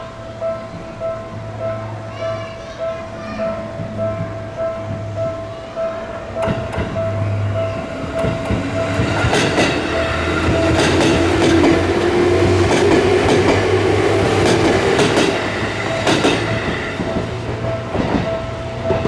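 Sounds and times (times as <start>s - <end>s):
train whine: 0.0s - 19.0s
crossing warning bell ringing: 3.4s - 19.0s
train wheels clacking over rail joints: 6.4s - 19.0s.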